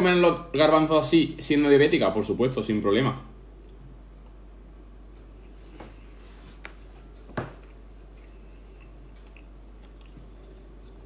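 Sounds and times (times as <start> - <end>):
person chewing food: 7.2 - 11.0.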